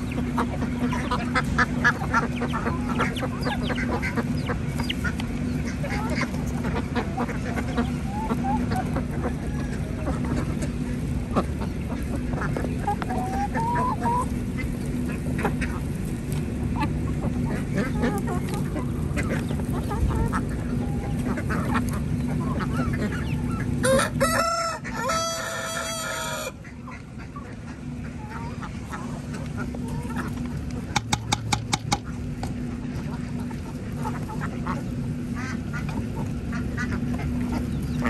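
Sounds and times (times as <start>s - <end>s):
soft bird calls: 0.0s - 23.8s, 32.0s - 38.0s
rooster crowing: 23.8s - 26.6s
birds pecking clicks: 29.4s - 34.4s.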